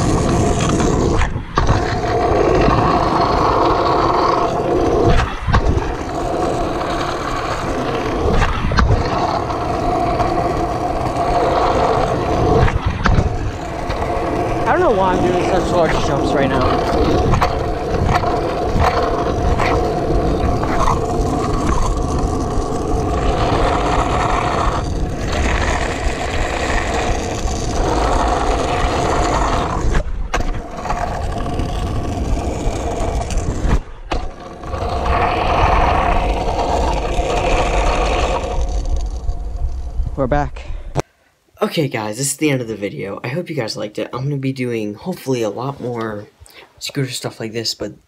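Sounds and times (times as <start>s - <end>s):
scooter wheels rolling on asphalt: 0.0s - 41.0s
wind rumbling on microphone: 0.0s - 41.0s.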